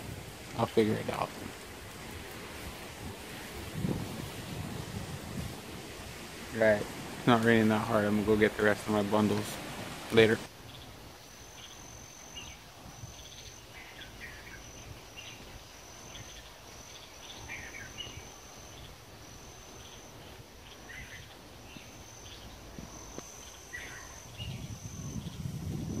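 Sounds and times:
insect trilling: 6.3s - 26.0s
bird chirps: 10.6s - 26.0s.

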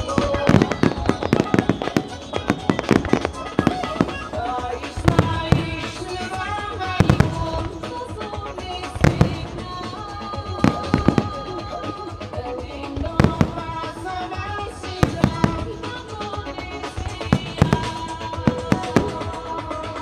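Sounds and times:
firework shells bursting: 0.0s - 8.0s
music playing: 0.0s - 20.0s.

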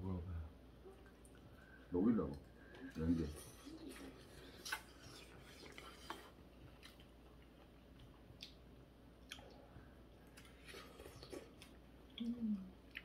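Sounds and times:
quiet chewing: 0.9s - 13.0s.

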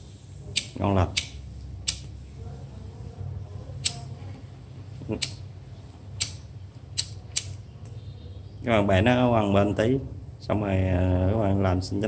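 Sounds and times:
lighter striker wheel clicking: 0.5s - 2.1s, 5.2s - 5.4s, 6.2s - 7.6s.

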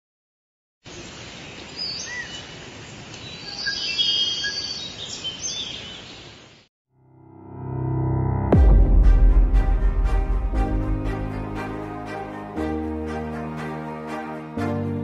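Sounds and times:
birds chirping and whistling: 1.8s - 2.5s, 3.2s - 6.4s.

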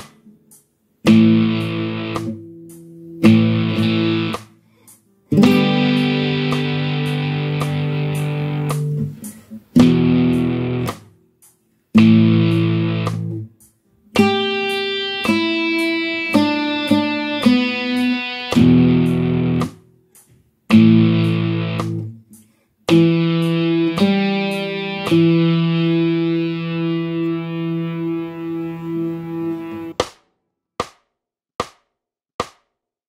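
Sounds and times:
guitar single picked notes: 1.0s - 4.5s, 5.3s - 11.1s, 12.0s - 13.5s, 14.2s - 19.8s, 20.7s - 22.2s, 22.9s - 30.0s
electric guitar power chords: 1.1s - 2.5s, 3.2s - 4.4s, 5.3s - 11.1s, 12.0s - 13.5s, 14.2s - 19.8s, 20.7s - 22.1s, 22.9s - 30.0s.

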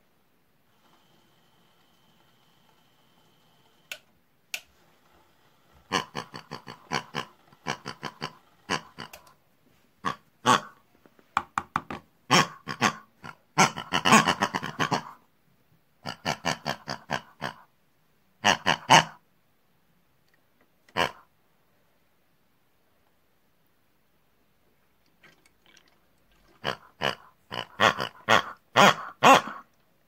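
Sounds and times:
pig-like grunting and oinking: 5.8s - 9.4s, 10.0s - 10.8s, 12.3s - 15.2s, 16.0s - 17.7s, 18.4s - 19.2s, 20.9s - 21.3s, 26.4s - 29.7s.

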